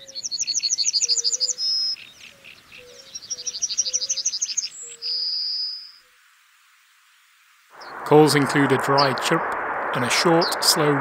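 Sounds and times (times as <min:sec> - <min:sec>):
bird singing: 0:00.0 - 0:06.1, 0:07.8 - 0:08.2.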